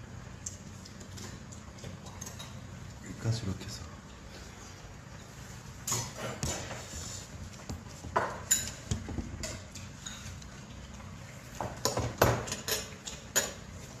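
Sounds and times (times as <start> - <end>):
utensils clicking against dishes: 0.4 - 2.7, 8.3 - 11.0, 11.8 - 13.8.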